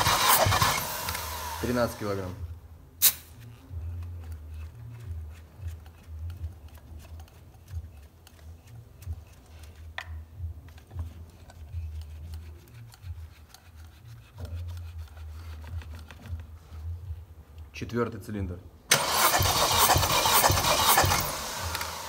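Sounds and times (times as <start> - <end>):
sharp click: 3.0 - 3.3
scraping and clicking handling noises: 3.4 - 16.9.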